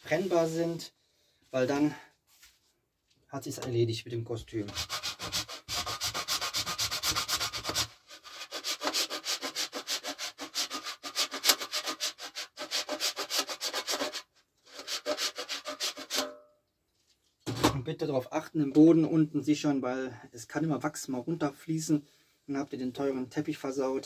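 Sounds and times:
candle grated on metal grater: 0:04.7 - 0:16.4.

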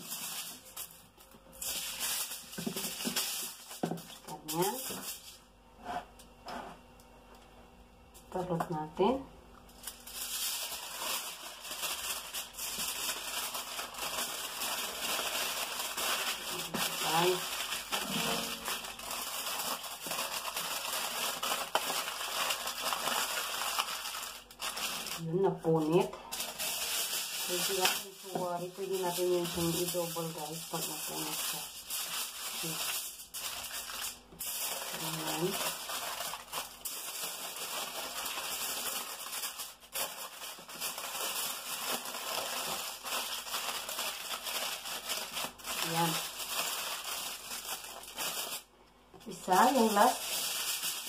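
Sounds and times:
foil crinkling: 0:00.0 - 0:05.5, 0:09.8 - 0:48.7, 0:49.3 - 0:51.0.

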